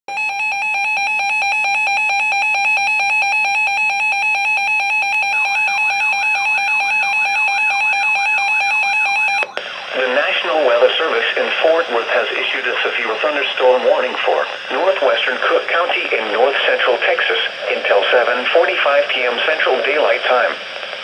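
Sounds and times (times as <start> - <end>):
warbling alarm tone: 0.1 - 19.3
rapid pulsed alarm beeping: 0.1 - 19.7.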